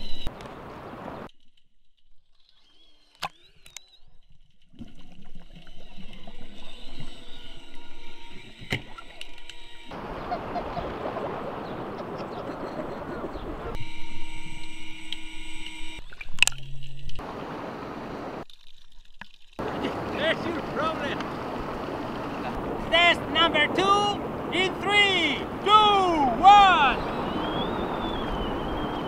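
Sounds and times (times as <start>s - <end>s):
motor and propeller whining underwater: 5.1s - 18.4s, 19.6s - 24.5s, 27.0s - 29.0s
churning water and bubbles: 18.4s - 24.6s.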